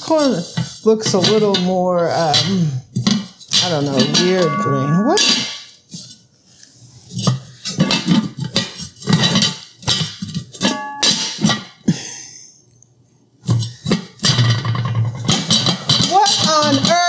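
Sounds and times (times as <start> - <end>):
short metallic ring: 10.6 - 11.3.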